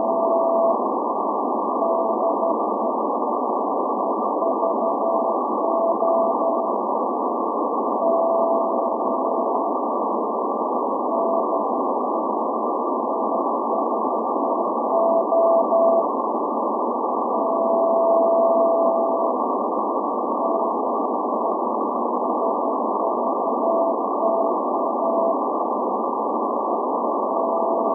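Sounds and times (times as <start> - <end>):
shortwave static hiss: 0.0 - 27.9
morse code beep tone: 8.0 - 9.4, 14.9 - 16.0, 17.4 - 19.3.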